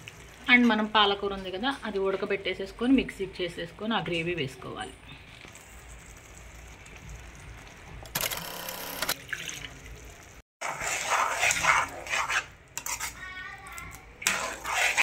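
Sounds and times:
spoon stirring and scraping pan: 0:10.6 - 0:15.0.

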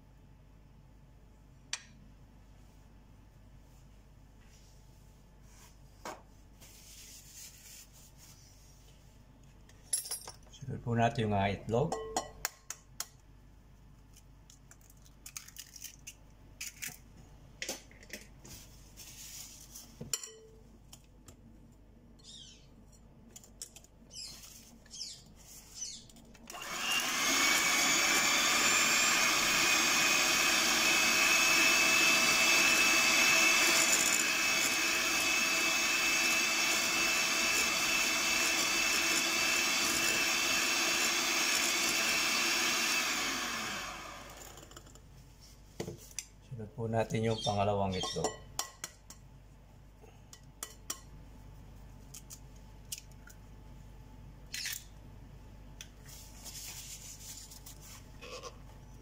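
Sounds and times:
electric mixer whining: 0:26.5 - 0:44.8.

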